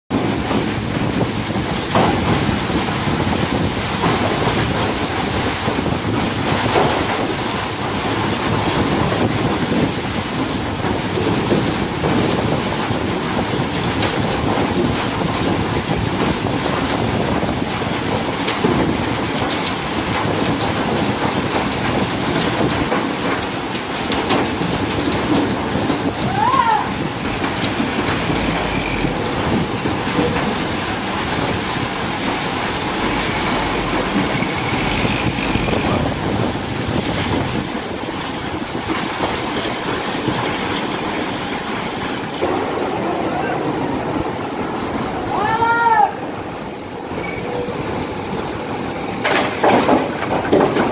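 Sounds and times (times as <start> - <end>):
coal lumps pouring into truck: 0.2 - 40.4, 49.2 - 50.9
short bending squeal: 47.1 - 47.9.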